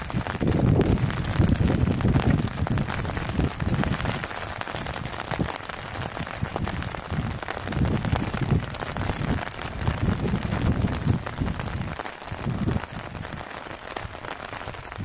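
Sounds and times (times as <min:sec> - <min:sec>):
rain pattering: 0:00.0 - 0:15.0
wind rumbling on microphone: 0:00.0 - 0:15.0.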